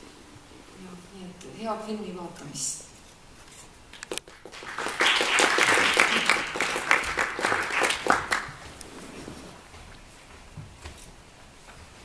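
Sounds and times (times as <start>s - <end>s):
audience applauding: 4.1s - 8.8s.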